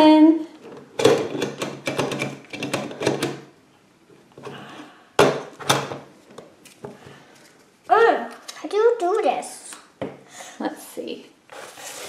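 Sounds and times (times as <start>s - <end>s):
plastic pieces knocking: 0.9s - 3.5s.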